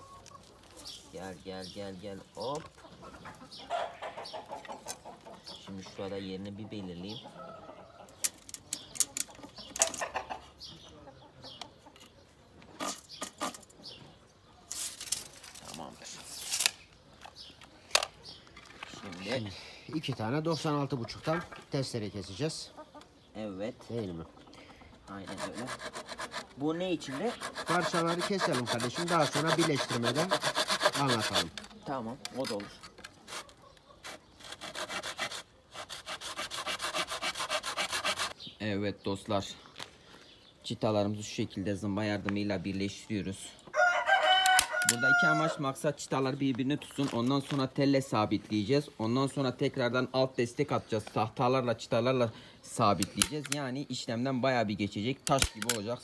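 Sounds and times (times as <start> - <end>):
birds chirping and clucking: 0.0 - 56.0
hand saw cutting wood: 25.2 - 31.6, 34.0 - 38.4.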